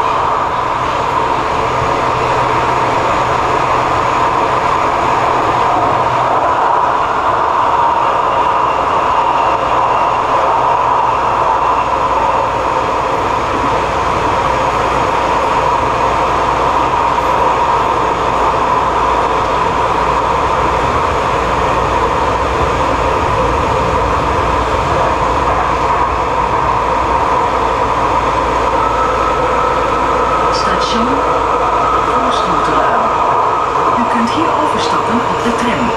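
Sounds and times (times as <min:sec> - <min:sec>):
train mid-pitched whine: 0:00.0 - 0:35.9
train rolling noise: 0:00.0 - 0:35.9.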